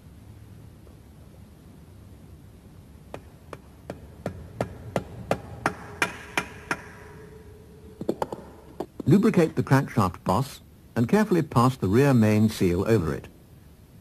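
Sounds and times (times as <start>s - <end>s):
hammer tapping metal drift: 3.1s - 9.0s.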